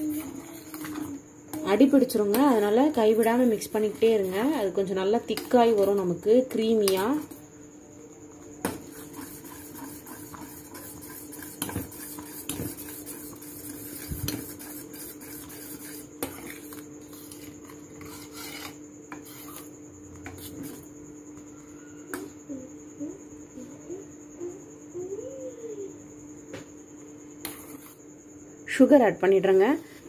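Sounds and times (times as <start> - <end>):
steady hum: 0.0 - 30.0
spoon scraping saucepan: 8.7 - 20.9.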